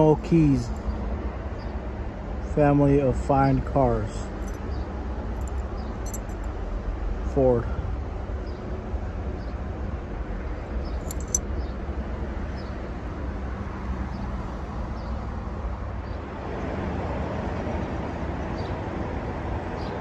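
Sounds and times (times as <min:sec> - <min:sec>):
keys jingling: 0:05.4 - 0:06.5, 0:11.0 - 0:11.4.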